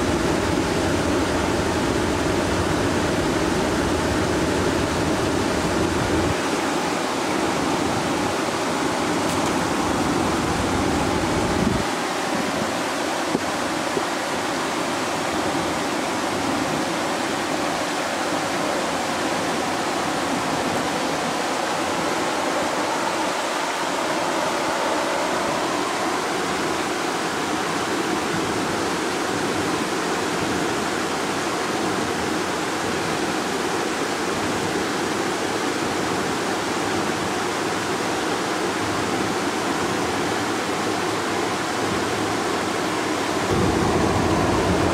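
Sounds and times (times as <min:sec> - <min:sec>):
river water pouring over a weir: 0:00.0 - 0:44.9
low rumble: 0:43.5 - 0:44.9.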